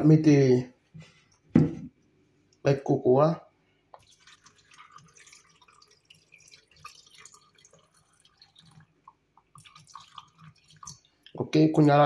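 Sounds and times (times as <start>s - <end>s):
milk trickling into blender jar: 4.0s - 11.4s.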